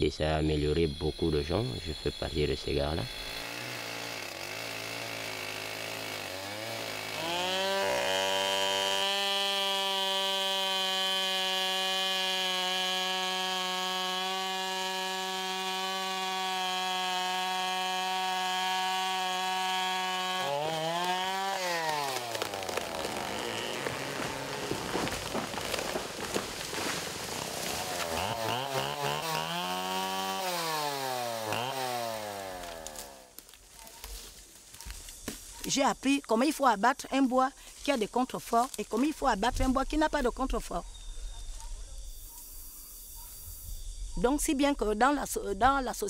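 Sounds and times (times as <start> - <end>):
chainsaw revving: 3.0 - 33.3.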